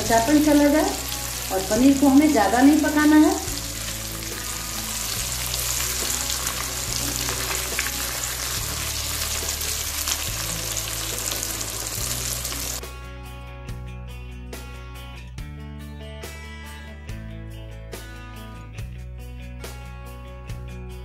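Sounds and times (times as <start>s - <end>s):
cheese cubes sizzling in oil: 0.2s - 12.8s.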